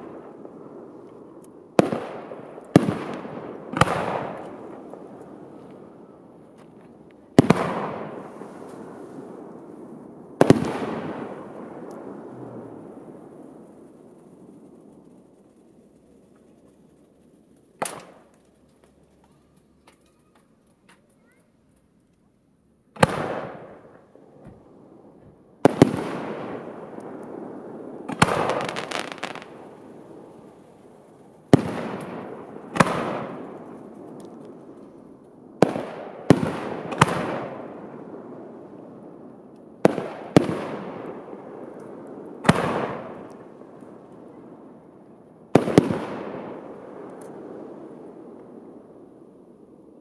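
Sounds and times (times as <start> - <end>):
firework shells bursting: 28.1 - 29.7.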